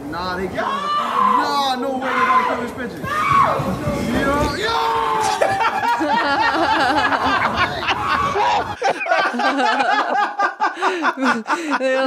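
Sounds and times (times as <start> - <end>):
men laughing: 3.6 - 12.0.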